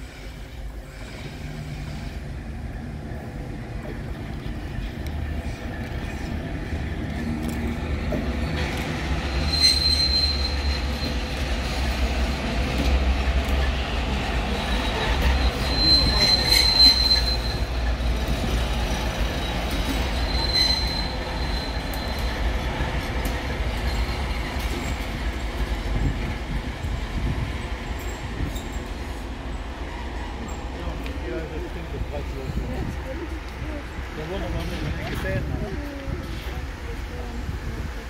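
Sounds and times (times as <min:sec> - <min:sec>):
diesel locomotive engine rumbling: 0:00.0 - 0:38.0
train wheels squealing: 0:08.1 - 0:11.9, 0:14.5 - 0:25.4, 0:28.0 - 0:29.2.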